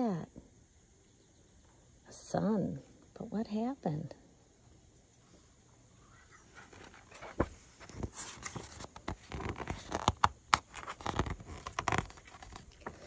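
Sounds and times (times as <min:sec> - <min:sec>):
paper page rustling: 0:06.5 - 0:13.0.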